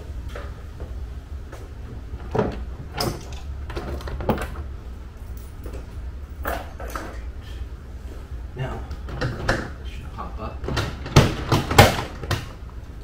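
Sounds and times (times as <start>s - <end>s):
steady low hum: 0.0s - 13.0s
plastic parts knocking and clattering: 10.7s - 12.5s.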